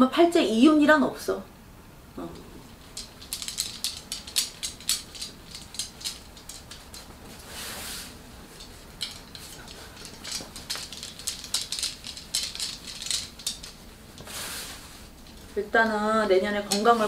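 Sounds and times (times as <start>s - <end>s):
wooden sticks clicking and clattering: 2.6s - 7.5s, 8.1s - 14.4s, 15.0s - 17.0s
cloth rustling: 2.8s - 15.6s
cloth swishing: 14.2s - 15.1s.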